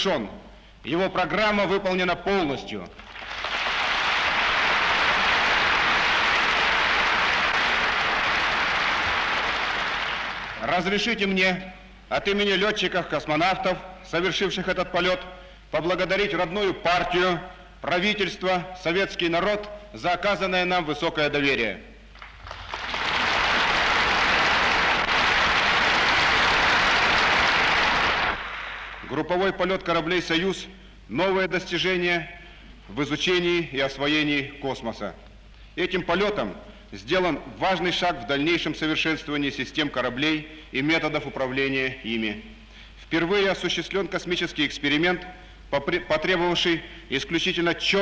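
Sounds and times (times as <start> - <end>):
audience applauding: 3.0 - 10.7, 22.2 - 29.1.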